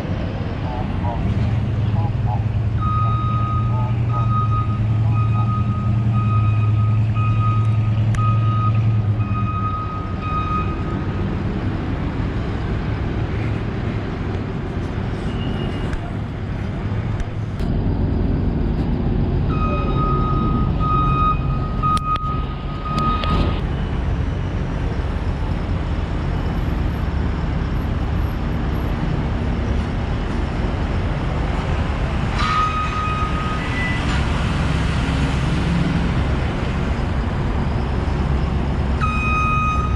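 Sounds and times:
heavy vehicle engine: 0:00.0 - 0:39.9
reversing alarm beeping: 0:02.3 - 0:11.7, 0:19.4 - 0:23.6, 0:32.4 - 0:34.2, 0:37.0 - 0:39.9.

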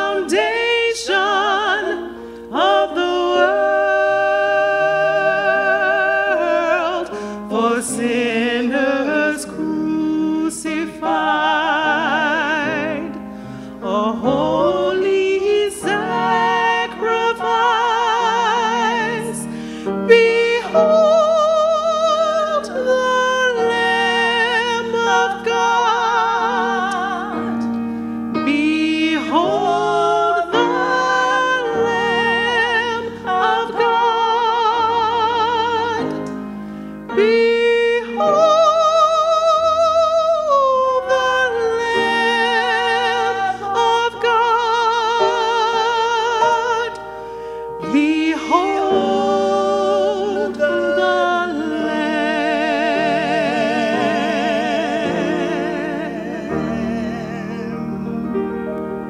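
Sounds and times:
person singing with vibrato: 0:00.0 - 0:58.8
singer breathing: 0:02.1 - 0:02.5, 0:07.1 - 0:07.5, 0:13.2 - 0:13.8, 0:19.4 - 0:20.1, 0:36.5 - 0:37.0, 0:47.1 - 0:47.8.

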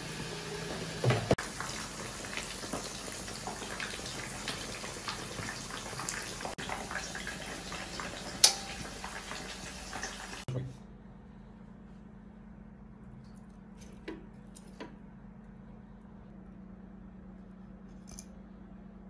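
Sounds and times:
broth bubbling in a pot: 0:00.0 - 0:10.5.

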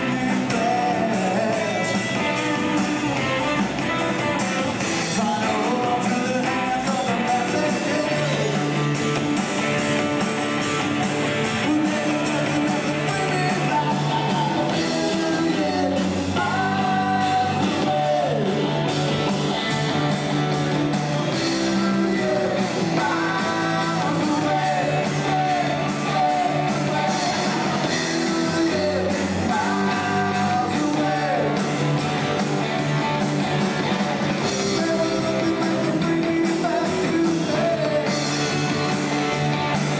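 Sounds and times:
person singing: 0:00.0 - 0:09.1, 0:11.4 - 0:19.1, 0:21.2 - 0:31.8, 0:34.3 - 0:38.8
drum kit: 0:00.0 - 0:39.9
electric guitars: 0:00.0 - 0:39.9.

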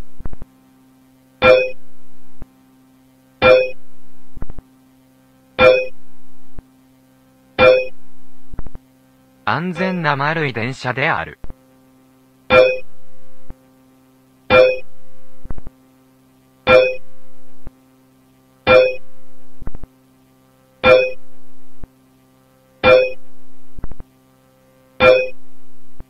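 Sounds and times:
held electronic drone: 0:01.4 - 0:01.8, 0:03.4 - 0:03.8, 0:05.6 - 0:06.0, 0:07.6 - 0:07.9, 0:16.7 - 0:17.1, 0:20.8 - 0:21.2, 0:22.8 - 0:23.2, 0:25.0 - 0:25.4
keyboard note struck: 0:01.4 - 0:01.8, 0:03.4 - 0:03.8, 0:05.6 - 0:06.0, 0:07.6 - 0:08.0, 0:12.5 - 0:12.9, 0:14.5 - 0:14.9, 0:16.7 - 0:17.1, 0:18.7 - 0:19.1, 0:20.8 - 0:21.2, 0:22.8 - 0:23.2, 0:25.0 - 0:25.4.

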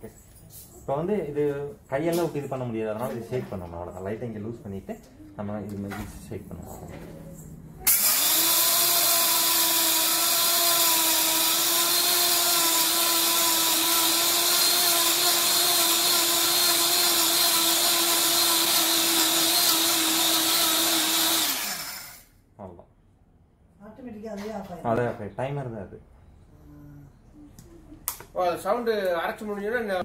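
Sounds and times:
grinder motor whining: 0:07.8 - 0:22.3.

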